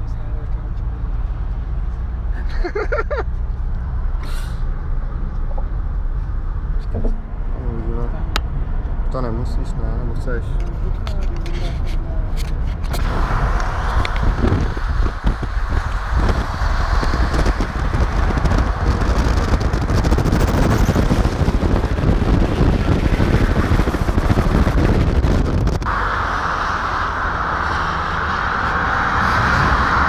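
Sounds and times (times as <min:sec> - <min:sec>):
car road and wind rush: 0:00.0 - 0:30.0
passing motorway traffic hiss: 0:25.9 - 0:30.0.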